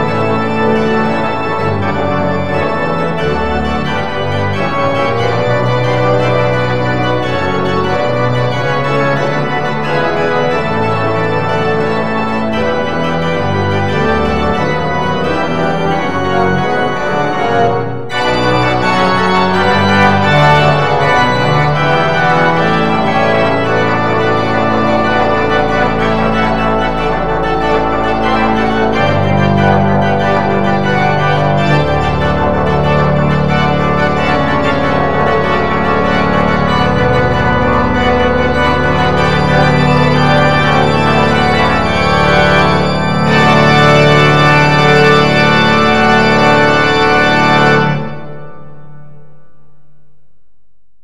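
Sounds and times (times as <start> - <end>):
organ playing sustained chords: 0.0 - 49.3.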